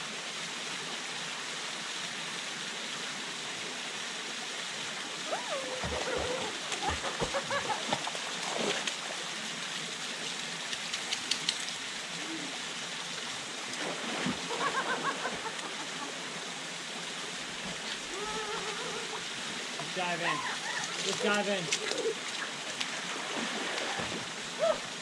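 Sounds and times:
waterfall pouring into pool: 0.0s - 25.0s
splashes of wading: 5.2s - 9.4s, 13.6s - 16.3s, 17.5s - 25.0s.

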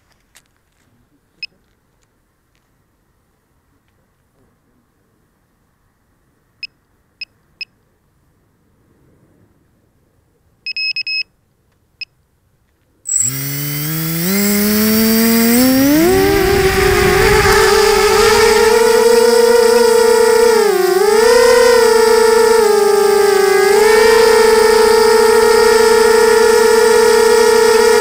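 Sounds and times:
short high electronic beeps: 13.1s - 13.8s
quadcopter motors whining: 13.1s - 28.0s.

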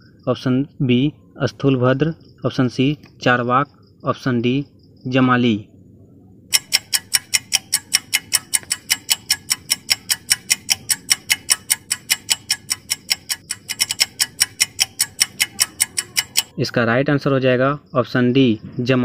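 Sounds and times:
rapid clock ticks: 6.5s - 16.6s.

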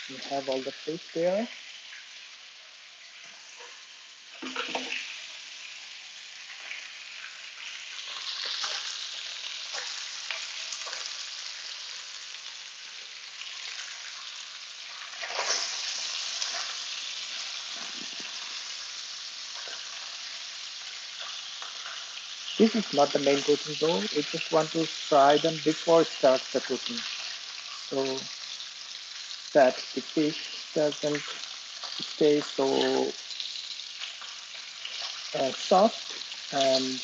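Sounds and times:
fish sizzling in hot oil: 0.0s - 37.0s
wooden spatula stirring in pan: 14.8s - 37.0s.

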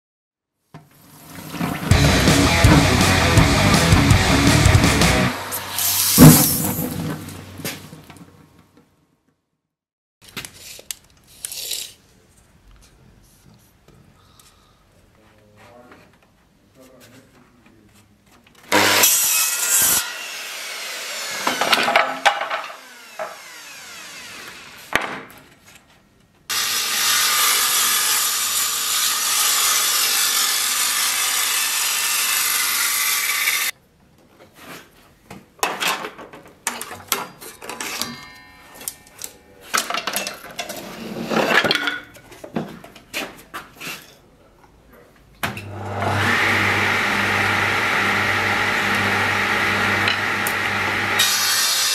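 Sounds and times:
jointer planing board: 1.7s - 7.0s, 18.7s - 25.4s, 45.6s - 51.9s
table saw humming: 1.9s - 6.9s, 18.7s - 25.0s, 26.5s - 33.7s, 45.6s - 51.9s.

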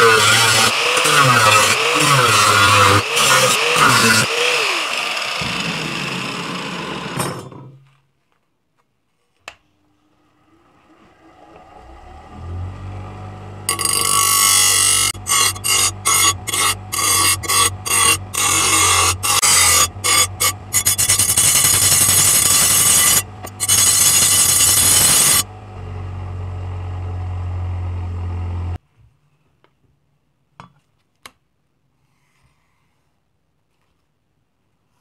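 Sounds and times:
grinder motor hum: 0.0s - 7.5s, 10.1s - 28.8s
grinder wheel grinding metal: 0.0s - 7.8s, 10.2s - 28.8s.

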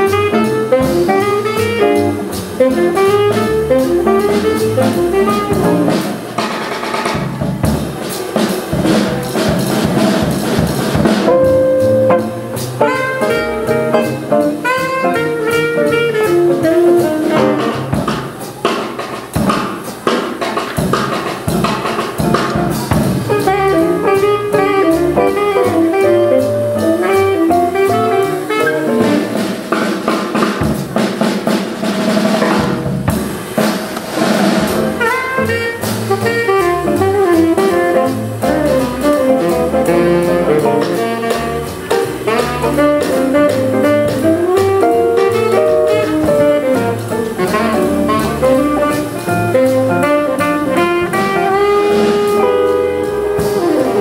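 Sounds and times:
tenor saxophone melody: 0.0s - 6.1s, 11.3s - 17.9s, 23.3s - 29.5s, 34.9s - 54.0s
upright bass: 0.0s - 6.4s, 7.2s - 18.4s, 20.8s - 29.6s, 34.2s - 54.0s
drum kit: 0.0s - 54.0s.

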